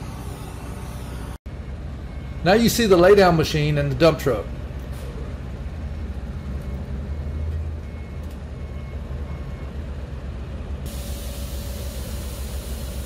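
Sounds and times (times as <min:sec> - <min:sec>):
heavy diesel engines rumbling: 0:00.0 - 0:13.0
backup alarm beeps: 0:01.6 - 0:03.4, 0:06.6 - 0:09.8.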